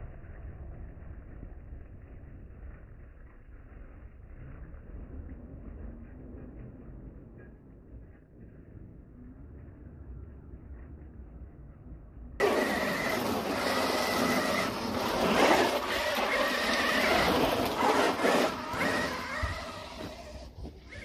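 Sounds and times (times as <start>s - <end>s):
electric motor whining: 12.4s - 21.0s
tyres scrabbling over gravel: 12.4s - 21.0s.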